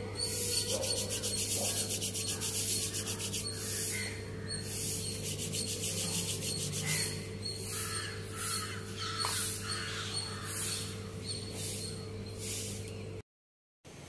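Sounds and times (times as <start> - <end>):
steady low hum: 0.0 - 13.2
scratchy rasping strokes: 0.2 - 8.8.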